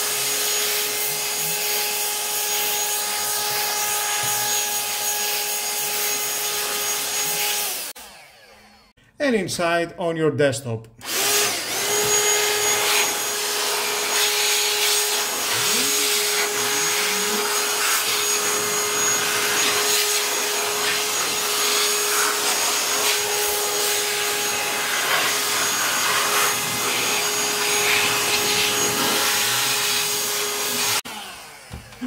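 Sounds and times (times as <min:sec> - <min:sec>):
air pump motor whine: 0:11.0 - 0:32.0.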